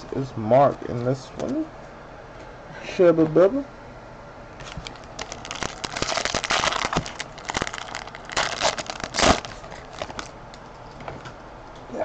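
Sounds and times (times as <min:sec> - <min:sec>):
foil wrapper crinkling: 0:04.6 - 0:10.4.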